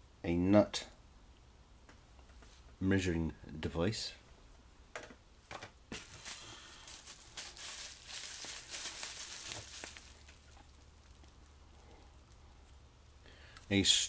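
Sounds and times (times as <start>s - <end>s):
packaging rustling and crinkling: 5.9s - 12.5s.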